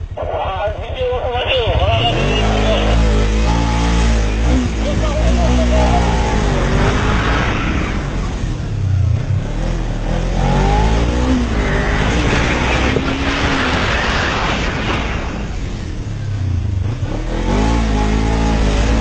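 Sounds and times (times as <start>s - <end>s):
low rumble and rushing noise: 0.0s - 19.0s
motorcycle engine running hard: 0.0s - 19.0s.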